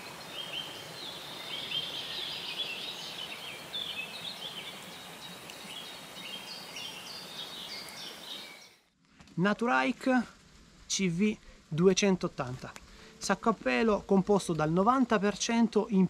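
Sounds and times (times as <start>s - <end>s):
birds chirping and singing: 0.0s - 8.8s
steady outdoor hiss: 0.0s - 16.0s.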